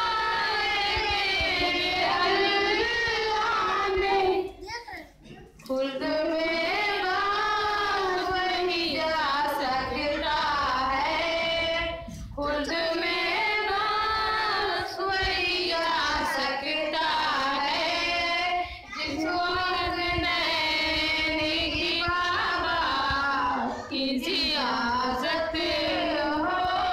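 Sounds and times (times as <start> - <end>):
girl singing unaccompanied: 0.0 - 26.9.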